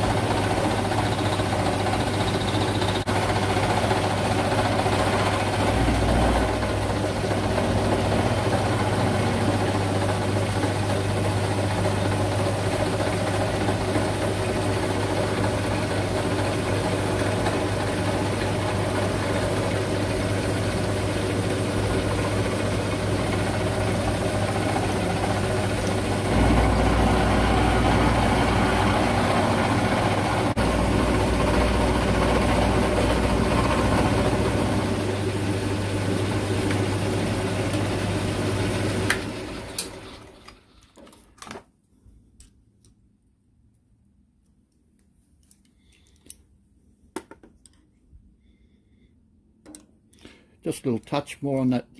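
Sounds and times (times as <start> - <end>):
machine running down: 0.0 - 40.4
milling machine cutting metal: 16.2 - 35.4.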